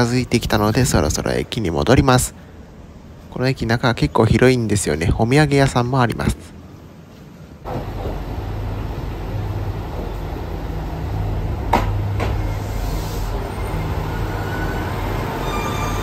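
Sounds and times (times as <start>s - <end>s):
train diesel engine drumming: 7.7s - 16.0s.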